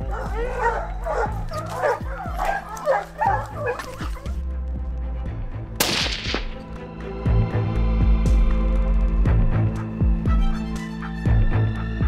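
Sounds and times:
dogs yelping and barking: 0.0 - 4.4
background music: 0.0 - 12.0.

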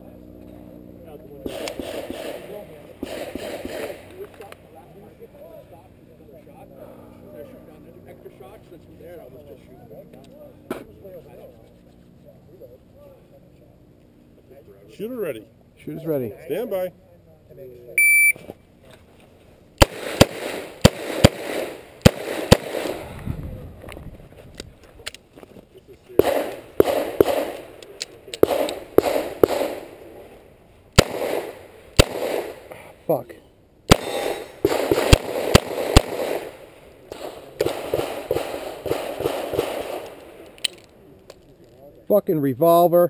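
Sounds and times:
rustling and movement: 18.3 - 33.4.

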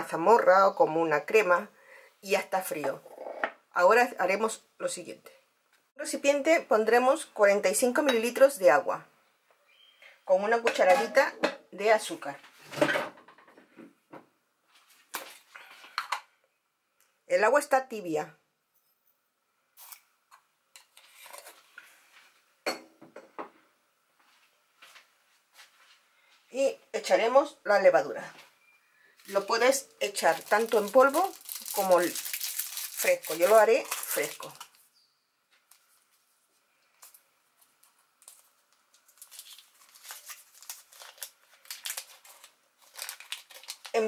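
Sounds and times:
soft rustle: 24.2 - 26.5, 30.3 - 43.8
wrapper crinkling and tearing: 29.2 - 34.9, 37.0 - 44.0.

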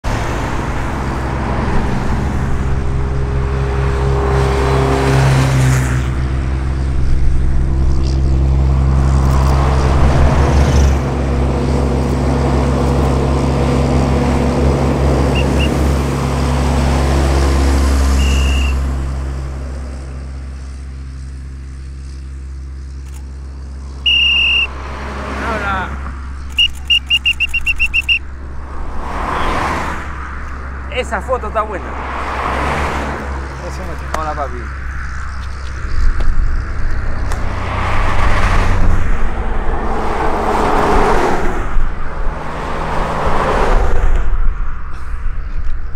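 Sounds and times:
diesel truck engine humming: 0.0 - 45.9
high chirps: 15.3 - 15.8, 18.1 - 18.8, 23.8 - 24.8, 26.2 - 28.3
short high tone: 24.1 - 24.7.

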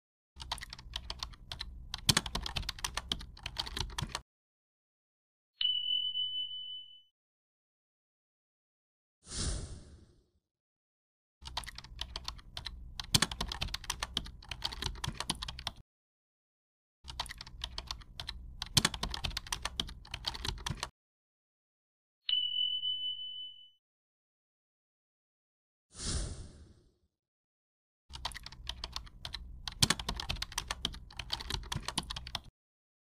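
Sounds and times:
rapid keyboard key clicks: 0.4 - 4.2, 11.4 - 15.8, 17.1 - 20.9, 28.1 - 32.5.

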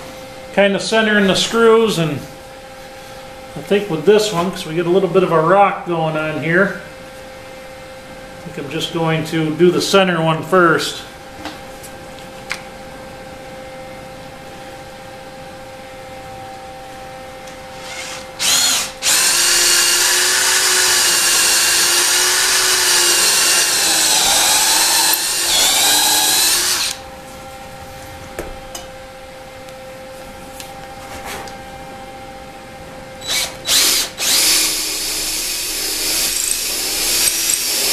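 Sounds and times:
power drill motor whine: 17.6 - 27.0, 33.2 - 37.9.

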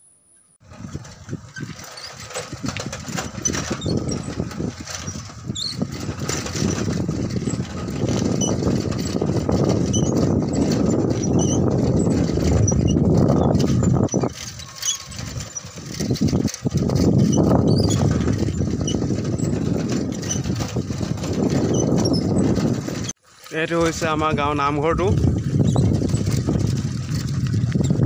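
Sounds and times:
vehicle engine running: 0.6 - 23.2
wind buffeting microphone: 0.6 - 28.0.

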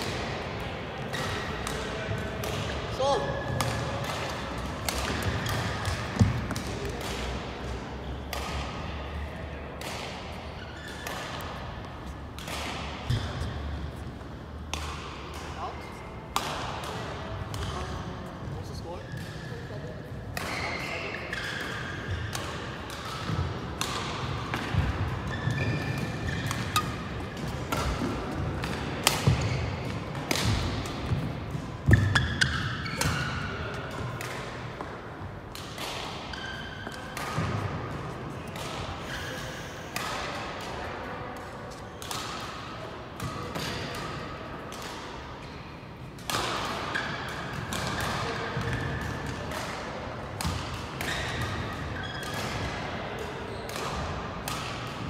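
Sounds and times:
racket hitting shuttlecock: 0.0 - 13.9, 14.5 - 15.6, 16.2 - 17.9, 20.3 - 39.0, 39.9 - 45.6, 46.2 - 55.0
shoes squeaking on court: 10.3 - 12.3, 25.0 - 28.4, 29.2 - 30.2, 31.0 - 33.9, 36.2 - 37.2, 51.0 - 52.4.

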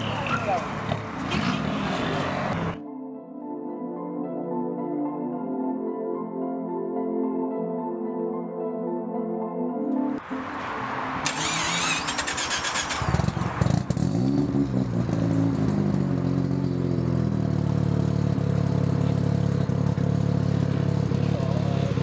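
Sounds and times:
starter motor cranking: 11.2 - 13.3
engine revving and idling: 11.2 - 22.0.

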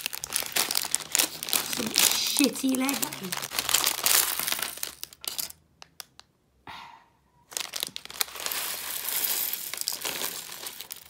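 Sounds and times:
plastic bag crinkling: 0.0 - 6.2, 7.5 - 11.0
plastic bricks clattering onto table: 3.4 - 5.6, 7.7 - 11.0.

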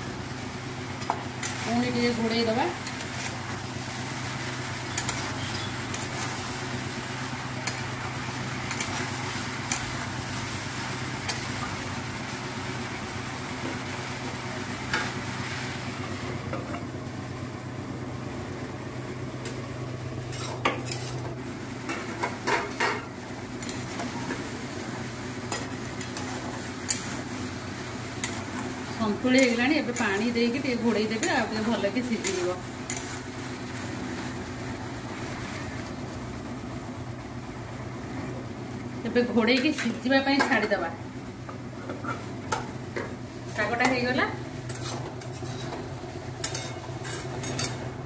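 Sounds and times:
vegetables sizzling in a pan: 0.0 - 37.2, 37.9 - 48.0
metal spatula scraping a pan: 20.3 - 21.3, 31.1 - 33.3, 44.7 - 47.8.

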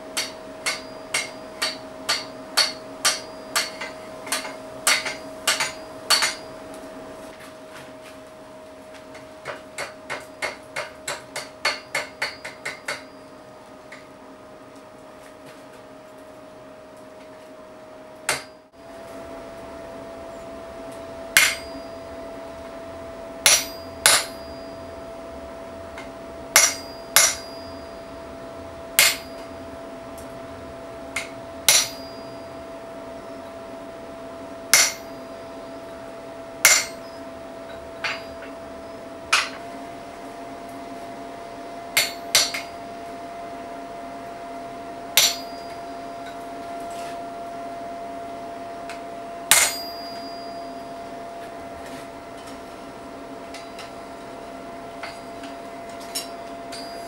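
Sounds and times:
steady hum: 0.0 - 57.0
hammer striking steel punch: 0.1 - 6.6, 9.4 - 13.2, 18.3 - 18.7, 21.3 - 21.9, 23.4 - 24.7, 26.0 - 27.9, 29.0 - 29.5, 31.2 - 32.4, 34.7 - 35.2, 36.6 - 37.2, 39.3 - 39.6, 42.0 - 42.8, 45.2 - 45.8, 49.5 - 50.6.

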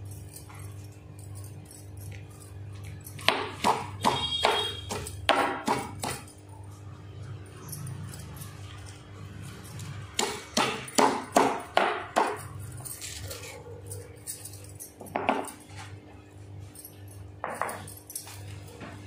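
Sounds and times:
stone pestle pounding in mortar: 3.2 - 6.3, 10.2 - 12.4.

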